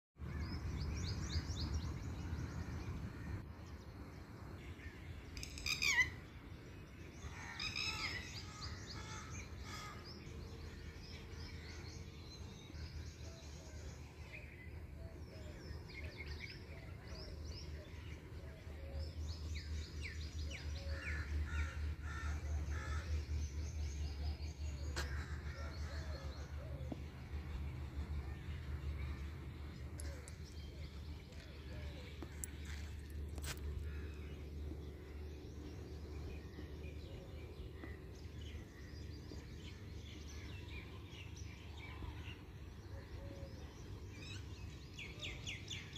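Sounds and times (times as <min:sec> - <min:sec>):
birds chirping and calling: 0:04.7 - 0:45.9
low rumble: 0:08.2 - 0:42.9.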